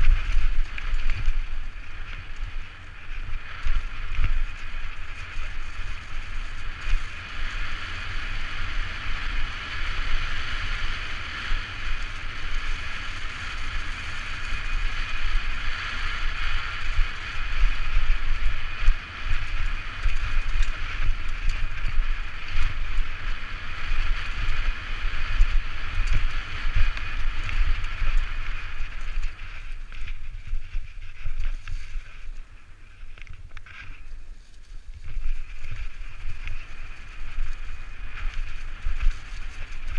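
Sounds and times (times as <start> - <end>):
bike tyres rolling over dirt: 0.0 - 39.9
wind buffeting microphone: 0.0 - 39.9.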